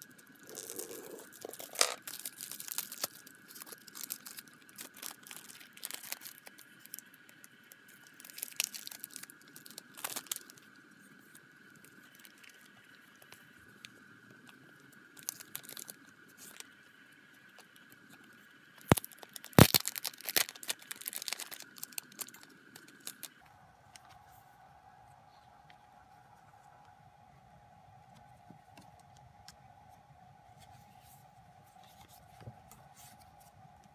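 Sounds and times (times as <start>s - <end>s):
plastic sleeves crinkling: 0.3s - 13.4s, 15.2s - 16.8s, 18.8s - 24.2s
plastic seal tearing: 18.9s - 23.3s.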